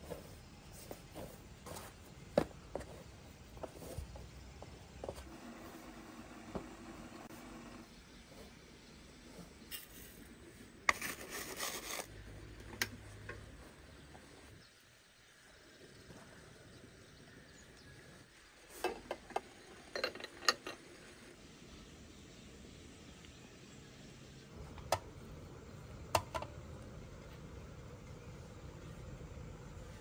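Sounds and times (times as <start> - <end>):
spoon scraping tea leaves in tin: 10.9 - 12.2.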